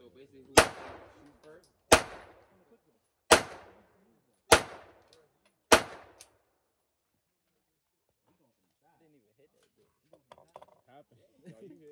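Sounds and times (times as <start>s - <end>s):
pistol shots with echo: 0.6s - 2.6s, 3.3s - 3.9s, 4.5s - 5.1s, 5.7s - 6.3s.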